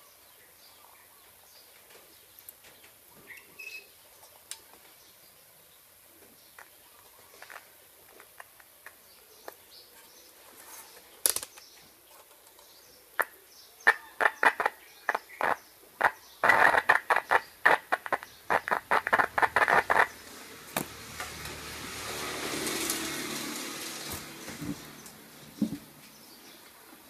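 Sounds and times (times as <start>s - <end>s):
loudspeaker cone clicking and crackling: 11.2s - 21.6s.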